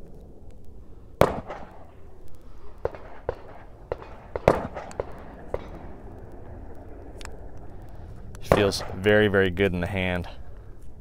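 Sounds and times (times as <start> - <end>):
gunshots: 1.2 - 1.9, 2.8 - 6.0, 8.4 - 9.3.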